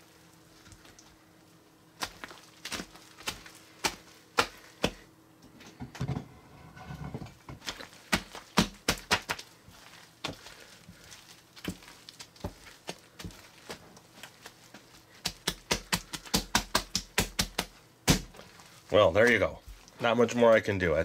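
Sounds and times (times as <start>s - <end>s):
slime crackling: 2.0s - 4.9s, 7.6s - 20.7s
soft squelching: 7.6s - 16.4s, 18.4s - 20.8s.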